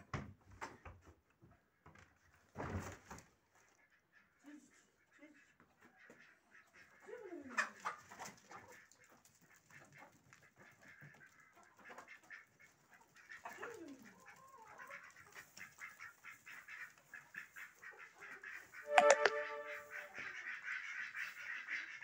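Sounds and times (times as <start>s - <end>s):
chickens clucking: 3.5s - 22.0s
duck quack: 14.7s - 22.0s.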